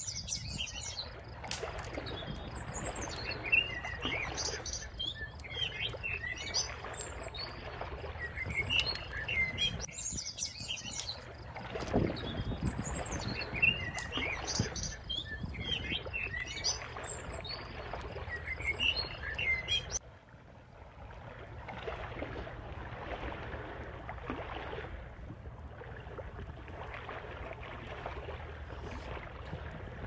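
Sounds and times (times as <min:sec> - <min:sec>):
small birds chirping: 0:00.0 - 0:07.6, 0:08.2 - 0:11.3, 0:12.1 - 0:20.0
low wind rumble: 0:00.0 - 0:30.0.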